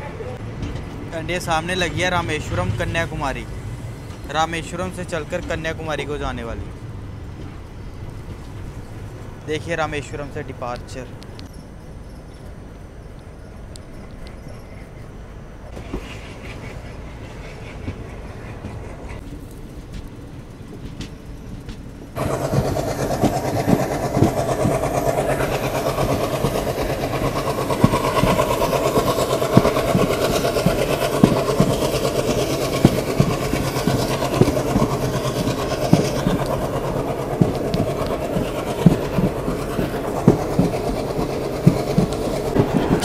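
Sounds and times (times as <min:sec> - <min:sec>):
train wheels rumbling on rails: 0:00.0 - 0:43.0
wheels knocking over rail joints: 0:19.2 - 0:43.0.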